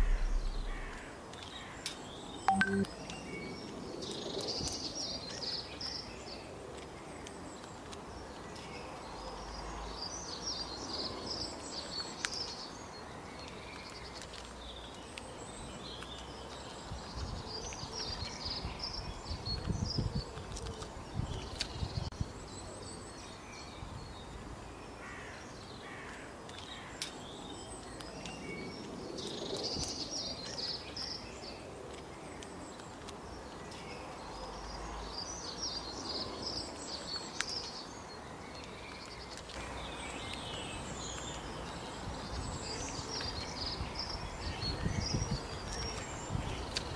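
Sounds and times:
low rumbles: 0:00.0 - 0:01.1
small birds chirping: 0:00.0 - 0:46.9.

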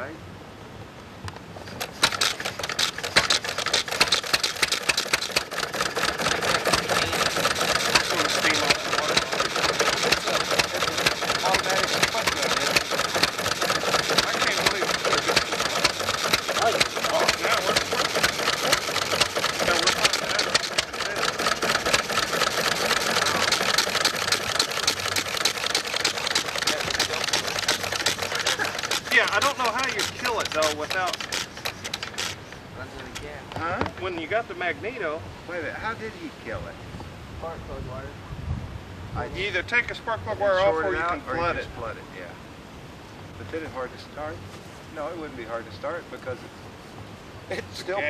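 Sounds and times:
old engine clattering: 0:01.6 - 0:34.3.

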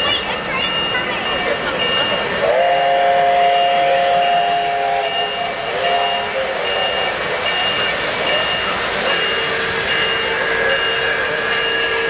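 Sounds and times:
crossing signal beeping: 0:00.0 - 0:12.0
model train horn: 0:02.4 - 0:06.7.

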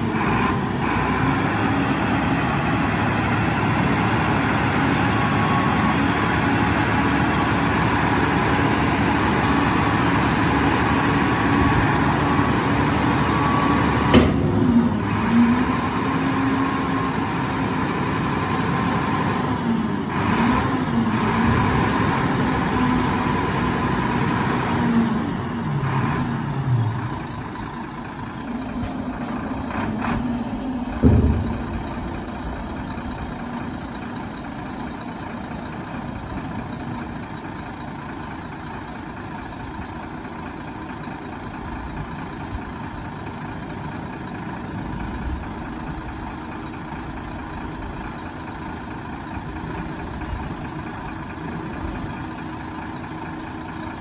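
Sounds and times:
truck diesel engine idling: 0:00.0 - 0:54.0
loud thump: 0:14.1 - 0:14.8, 0:30.8 - 0:33.2.

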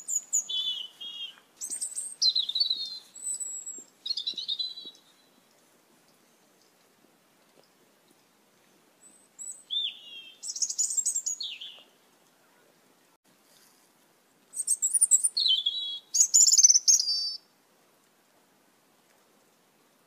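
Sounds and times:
starlings calling: 0:00.0 - 0:05.2, 0:09.0 - 0:11.9, 0:14.6 - 0:17.4.

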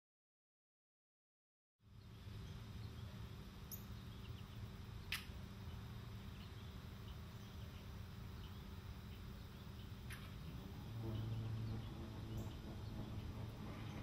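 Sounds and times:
steady low rumble: 0:01.8 - 0:14.0
sharp click: 0:05.1 - 0:05.4.

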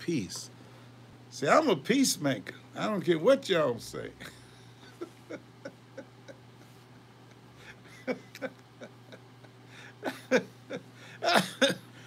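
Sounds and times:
faint steady hum: 0:00.0 - 0:12.0
man chuckling quietly: 0:04.1 - 0:12.0.

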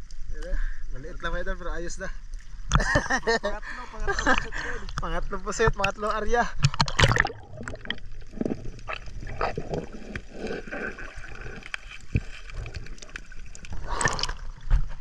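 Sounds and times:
water sloshing: 0:04.2 - 0:15.0.

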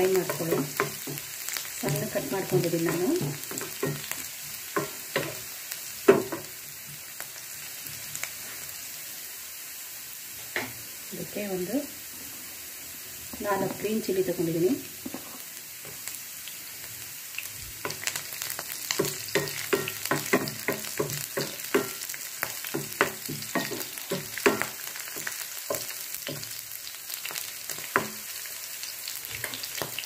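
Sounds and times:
spatula knocking and scraping pan: 0:00.0 - 0:06.5, 0:17.8 - 0:26.6, 0:27.2 - 0:28.3
food sizzling in hot oil: 0:00.0 - 0:30.0.

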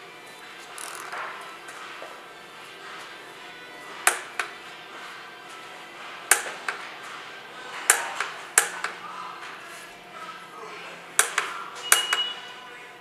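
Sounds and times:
socket wrench clicking: 0:00.8 - 0:01.1, 0:11.2 - 0:12.2.

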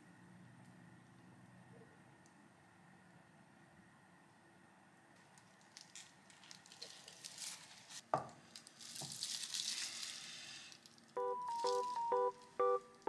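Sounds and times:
plastic bag rustling: 0:05.2 - 0:12.6
light music with plucked notes: 0:11.2 - 0:13.0.

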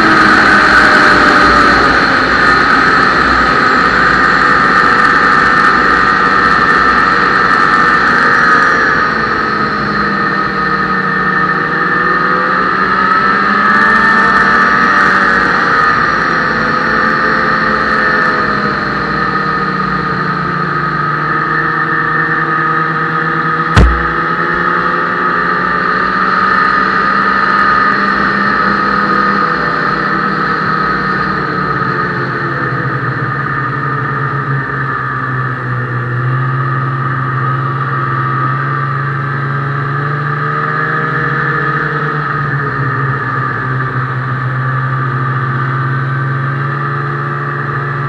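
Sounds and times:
snowmobile engine running: 0:23.8 - 0:24.2
sharp knock: 0:23.8 - 0:24.3.

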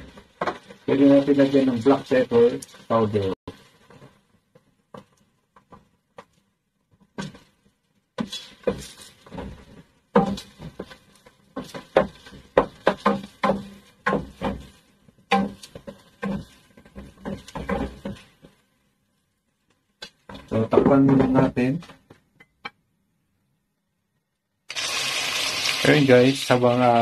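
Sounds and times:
chicken sauteing: 0:24.7 - 0:27.0.

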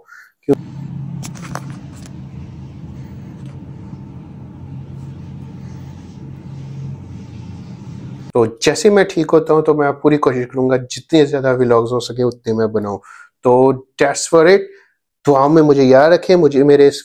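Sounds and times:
motor vehicle rumble: 0:00.6 - 0:08.3.

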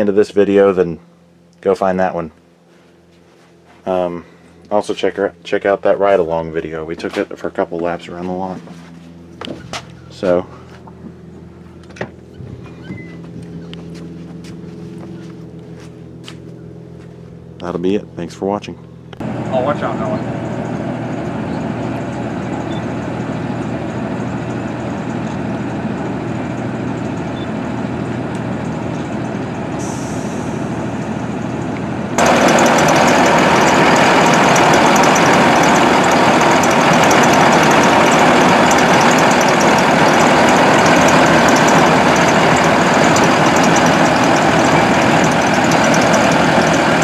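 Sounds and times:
diesel bus engine idling: 0:18.9 - 0:47.0.

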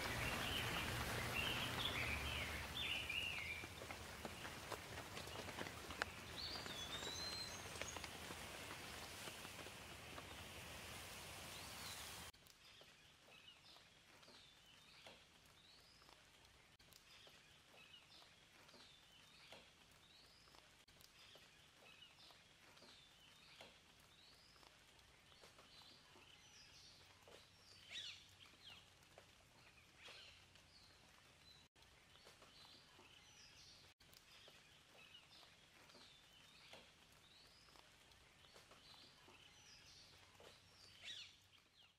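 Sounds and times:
background hiss: 0:00.0 - 0:12.8
birds chirping: 0:00.0 - 0:15.1.

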